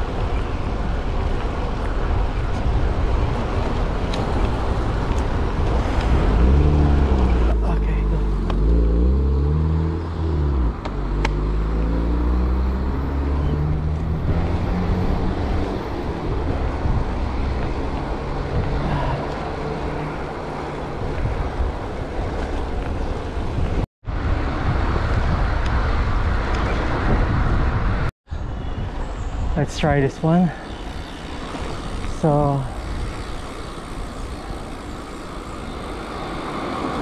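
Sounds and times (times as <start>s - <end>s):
road noise: 0.0s - 37.0s
wind: 0.0s - 37.0s
car engine accelerating: 6.1s - 15.8s.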